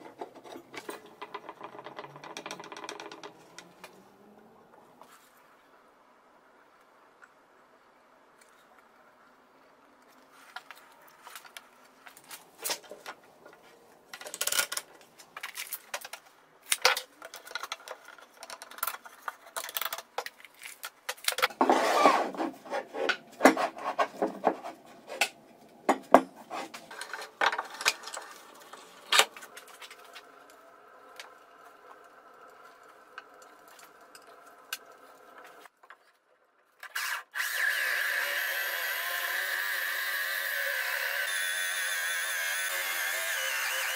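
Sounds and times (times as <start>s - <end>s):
electric drill boring into wood: 37.0s - 43.9s.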